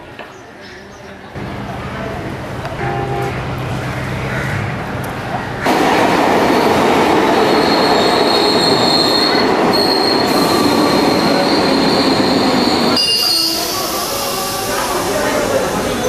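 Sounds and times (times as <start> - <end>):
train wheels rumbling on rails: 1.4 - 16.0
high wheel squeal: 7.5 - 16.0.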